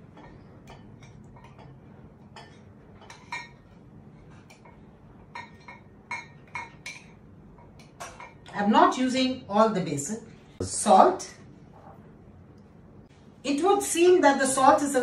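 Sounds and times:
metal spoon clinking against bowl: 0.1s - 3.8s, 4.5s - 8.6s.

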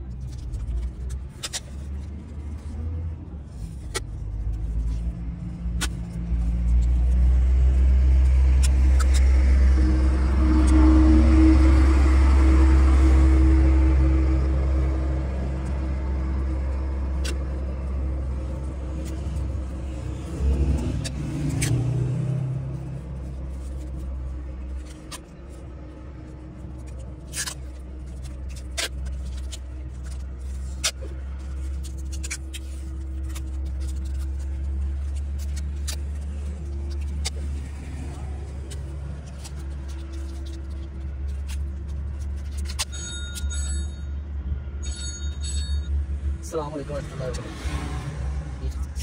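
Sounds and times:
low engine rumble: 0.0s - 49.0s.

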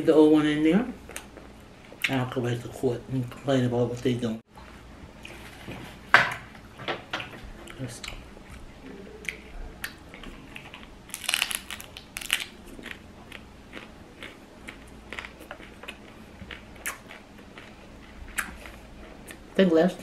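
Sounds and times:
chewing crunchy chip: 10.1s - 19.4s.

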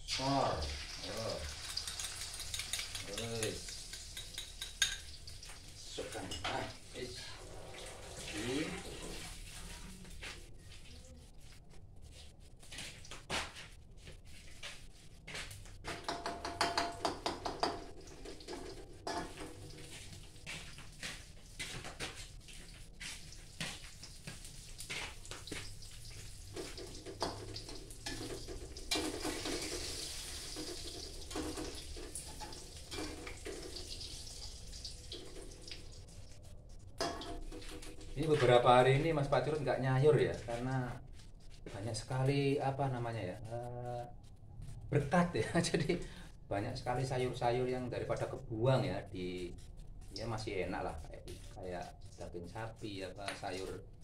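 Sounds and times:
eggs sizzling in oil: 0.0s - 11.7s, 14.8s - 43.7s
spatula knocking and scraping wok: 1.5s - 6.7s, 15.8s - 20.2s, 23.8s - 33.9s, 37.0s - 38.2s.

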